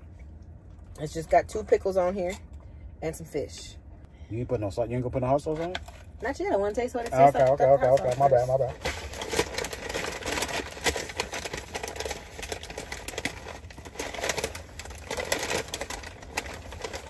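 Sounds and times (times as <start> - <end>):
paper bag rustling: 7.1 - 17.0.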